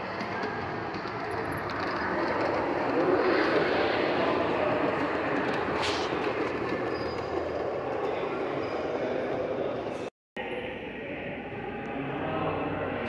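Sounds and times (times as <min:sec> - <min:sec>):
model train rolling on track: 0:00.0 - 0:10.1.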